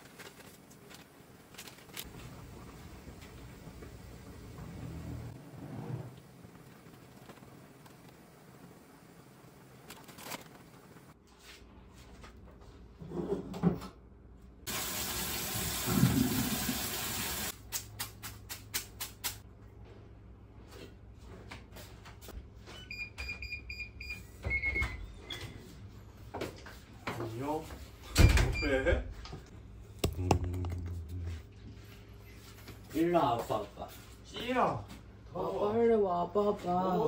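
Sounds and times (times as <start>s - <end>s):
faucet water running into sink: 14.7s - 17.5s.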